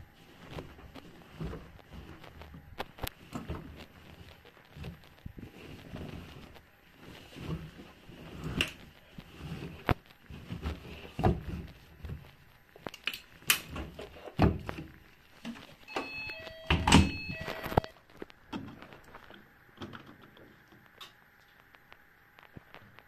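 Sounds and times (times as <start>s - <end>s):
bedding rustling and thumping: 0.0s - 17.8s
short electronic beeps: 15.9s - 18.0s.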